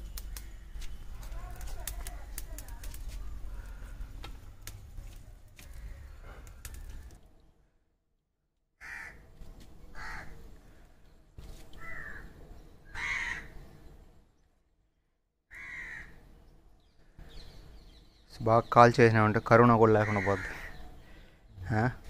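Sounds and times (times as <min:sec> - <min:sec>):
crow cawing: 0:03.5 - 0:04.1, 0:05.6 - 0:07.1, 0:08.8 - 0:09.2, 0:09.9 - 0:10.4, 0:11.8 - 0:12.3, 0:12.9 - 0:13.6, 0:15.5 - 0:16.2, 0:20.0 - 0:21.3.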